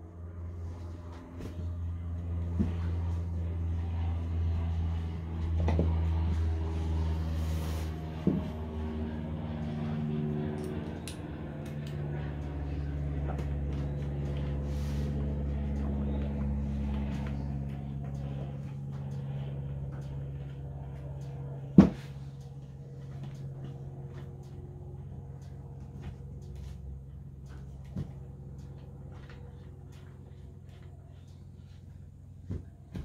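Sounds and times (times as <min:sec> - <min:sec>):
low background hum: 0:00.0 - 0:33.0.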